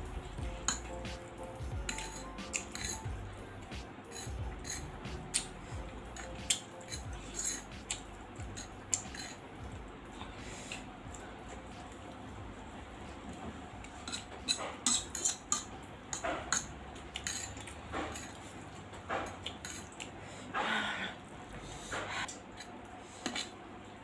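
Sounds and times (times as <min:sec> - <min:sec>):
fork scraping ceramic plate: 0:01.9 - 0:03.1, 0:04.1 - 0:05.5, 0:06.2 - 0:08.0, 0:08.6 - 0:09.4, 0:14.0 - 0:18.4.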